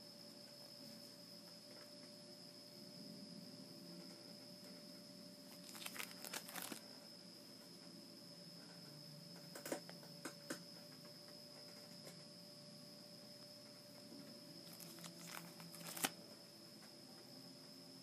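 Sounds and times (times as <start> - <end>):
plastic binder pages turning: 5.5 - 6.8, 14.6 - 16.2.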